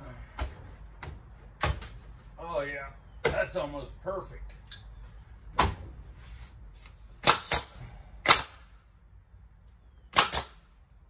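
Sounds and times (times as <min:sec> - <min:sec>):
nail gun firing into wood: 0:07.2 - 0:08.6, 0:10.1 - 0:10.6.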